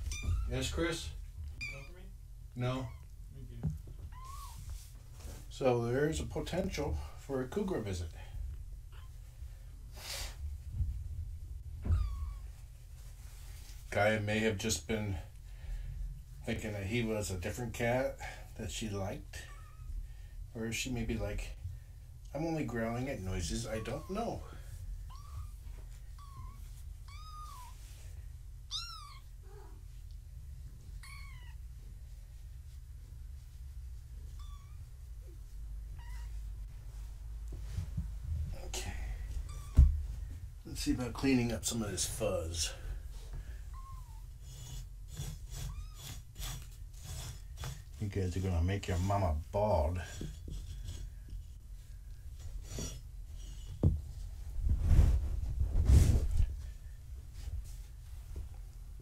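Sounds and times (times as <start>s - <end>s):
kitten mewing: 31.0s - 31.6s, 36.0s - 36.4s
cloth blanket rustling: 54.0s - 59.0s.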